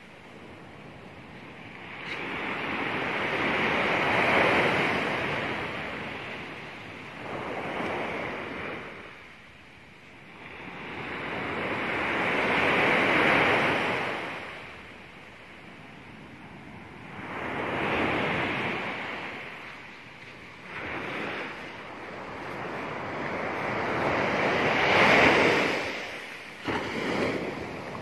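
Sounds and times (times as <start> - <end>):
surf breaking on beach: 17.1 - 28.0.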